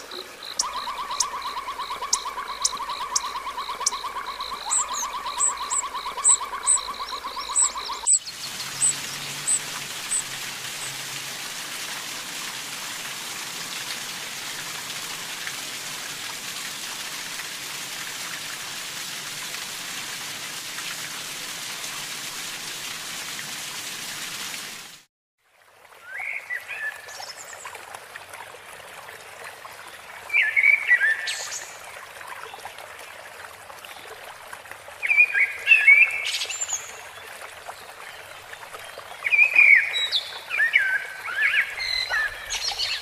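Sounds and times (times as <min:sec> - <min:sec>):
steady hiss of water: 0:00.0 - 0:43.0
high bird chirps: 0:00.5 - 0:10.2.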